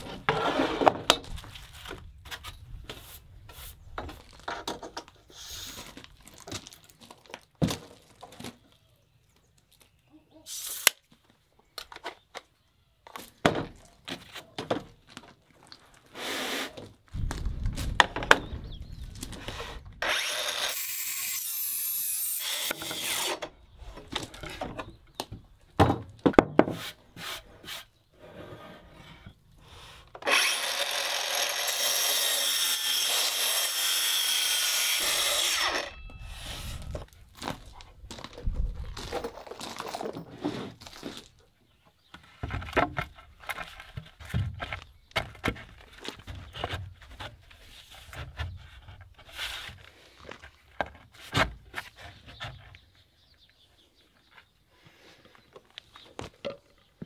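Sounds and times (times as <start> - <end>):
knocks and clatter of wood: 3.9 - 5.2, 5.9 - 8.6, 13.1 - 15.4, 17.1 - 20.0, 23.9 - 26.8, 42.1 - 52.8
circular saw cutting wood: 20.0 - 23.4, 30.2 - 36.9.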